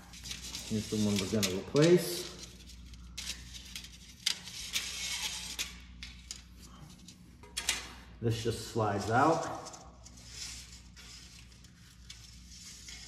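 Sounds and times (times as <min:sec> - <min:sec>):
blind slats clicking and rustling: 0:00.0 - 0:06.5, 0:07.4 - 0:08.0.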